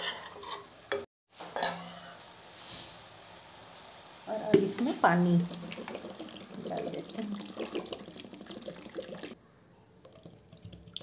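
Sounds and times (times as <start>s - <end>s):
water pouring into pot: 4.6s - 9.4s, 10.0s - 11.0s
faint water drips: 4.7s - 9.4s, 10.0s - 11.0s.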